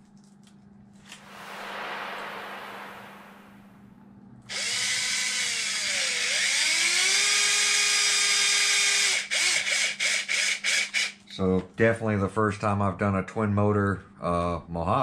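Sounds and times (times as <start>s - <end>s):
power driver motor whine: 4.5s - 6.8s.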